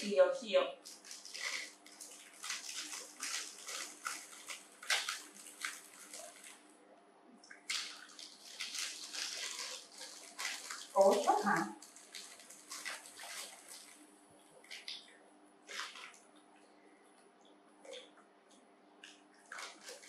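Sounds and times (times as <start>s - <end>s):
plastic snack packet crinkling: 0.8s - 6.7s, 7.6s - 16.4s, 19.4s - 20.0s.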